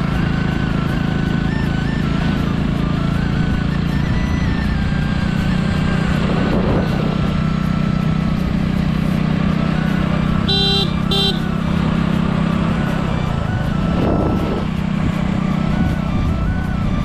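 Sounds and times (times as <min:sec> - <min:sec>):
motorcycle engine running: 0:00.0 - 0:17.0
short horn beeps: 0:10.4 - 0:11.6.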